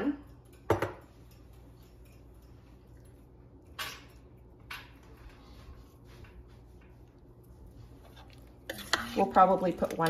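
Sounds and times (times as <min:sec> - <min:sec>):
faint room hum: 0:00.0 - 0:10.0
spoon scraping salt: 0:08.0 - 0:10.0.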